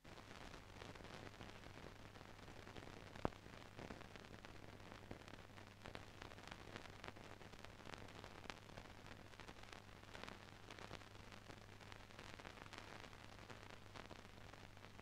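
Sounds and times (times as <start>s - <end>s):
faint crackles: 0.0s - 15.0s.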